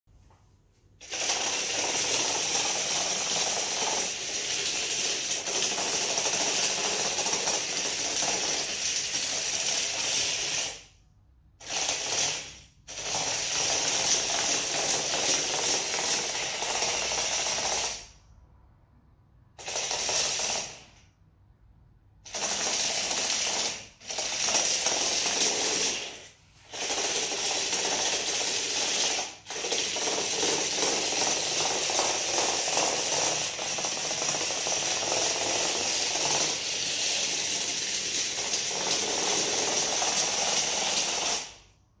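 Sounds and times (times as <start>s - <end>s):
toy car motors whirring and rattling: 1.0s - 11.0s, 11.6s - 18.2s, 19.6s - 21.0s, 22.2s - 41.7s.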